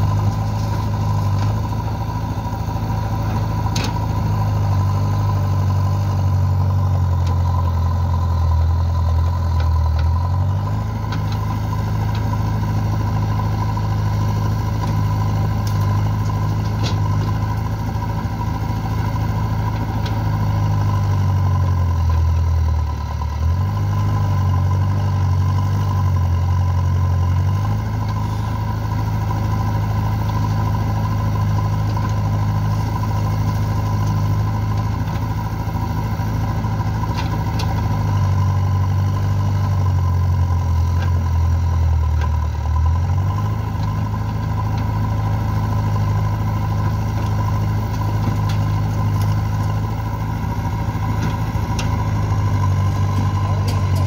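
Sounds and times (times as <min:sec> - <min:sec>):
backhoe diesel engine running: 0:00.0 - 0:54.0.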